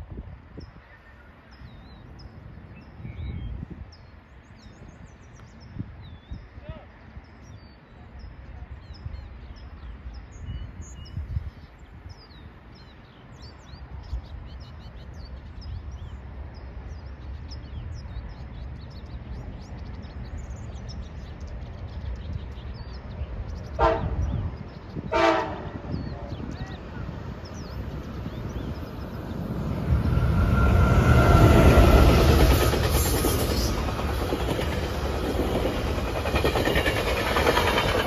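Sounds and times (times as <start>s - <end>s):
small birds chirping: 0.6s - 38.0s
train locomotive rumbling: 15.6s - 38.0s
train horn blasts: 23.8s - 24.4s, 25.0s - 26.0s.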